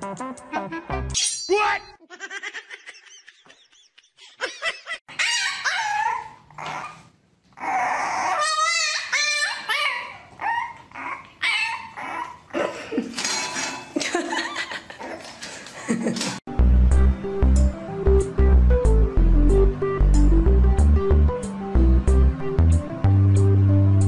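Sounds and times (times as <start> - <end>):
puppy whining and yipping: 5.1 - 12.5.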